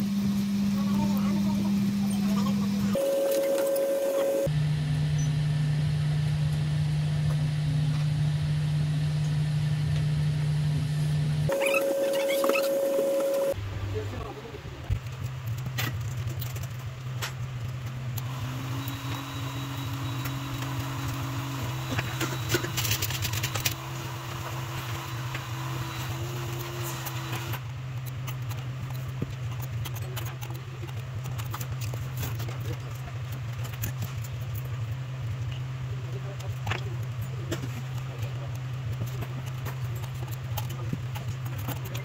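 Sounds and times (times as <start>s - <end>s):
low machine hum: 0.0s - 42.0s.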